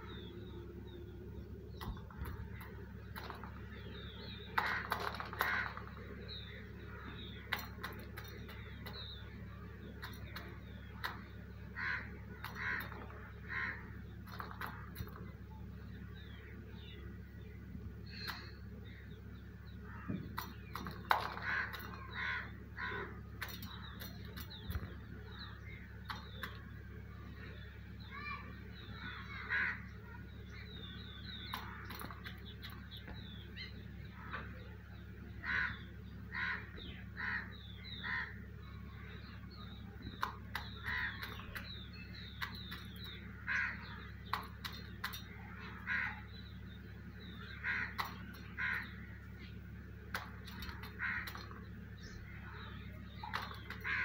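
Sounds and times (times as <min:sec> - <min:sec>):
beak pecking steel bowl: 0:01.8 - 0:15.4, 0:20.2 - 0:26.7, 0:31.0 - 0:33.7, 0:40.0 - 0:54.0
crows cawing: 0:04.4 - 0:09.1, 0:09.9 - 0:15.2, 0:19.7 - 0:26.6, 0:28.1 - 0:30.6, 0:31.4 - 0:34.5, 0:35.4 - 0:39.3, 0:40.2 - 0:54.0.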